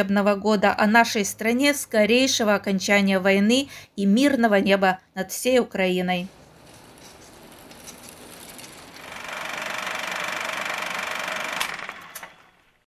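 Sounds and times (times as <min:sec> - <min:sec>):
rapid mechanical clatter: 0:06.3 - 0:12.8.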